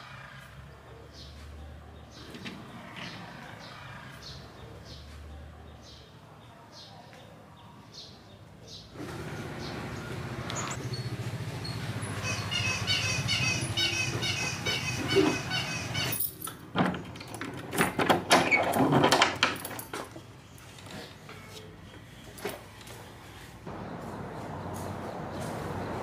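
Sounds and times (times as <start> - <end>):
keys jangling and padlock clinking: 16.0 - 16.7, 19.4 - 20.2.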